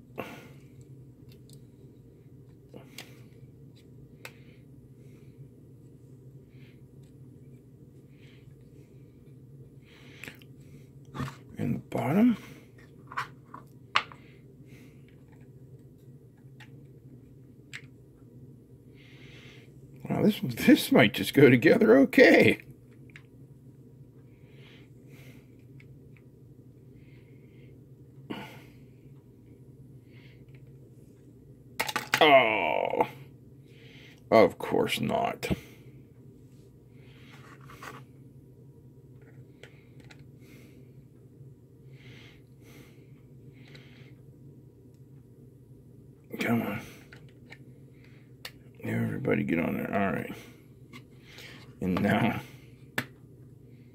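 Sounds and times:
low hum: 0.0 - 21.6
soft rubbing of plastic: 36.5 - 38.1.

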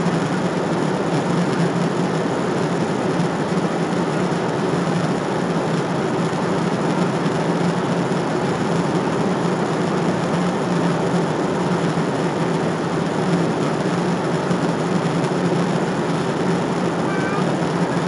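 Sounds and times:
jet airliner cabin noise: 0.0 - 18.0
low drone: 13.4 - 18.0.

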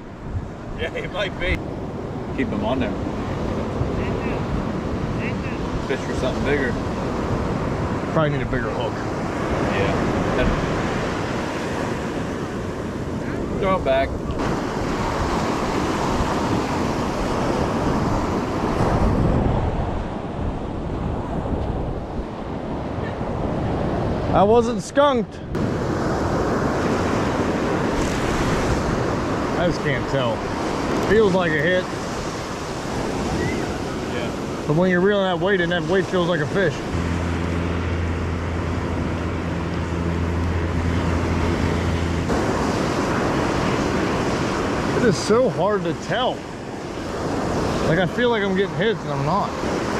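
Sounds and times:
wind buffeting microphone: 0.0 - 49.9
surf breaking on sand: 0.2 - 49.9
steady low hum: 36.6 - 45.2.

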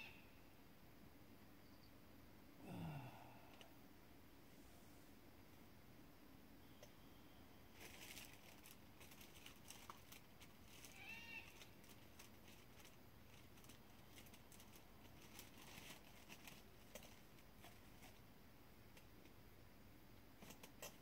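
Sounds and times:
soft ticks and crackles: 7.8 - 19.5.

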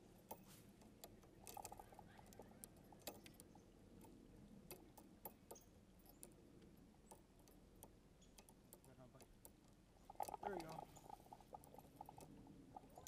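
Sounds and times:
fishing reel ticks and clicks: 1.0 - 4.1, 7.2 - 13.0.

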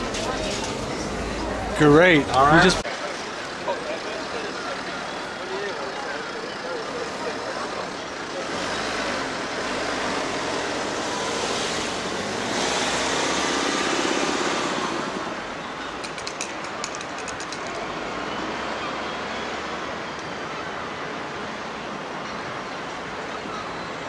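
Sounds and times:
passing vehicles hiss: 2.8 - 16.0
sharp clicks: 16.0 - 17.9.

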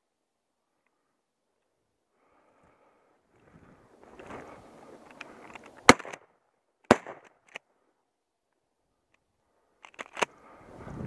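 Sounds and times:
shotgun blast: 6.9 - 7.3.

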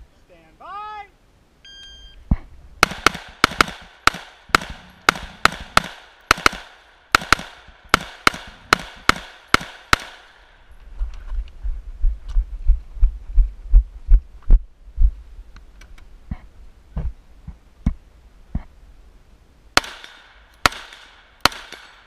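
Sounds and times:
shot timer beep: 1.6 - 2.2
rifle firing rapid shots: 2.8 - 10.4, 19.8 - 22.0.

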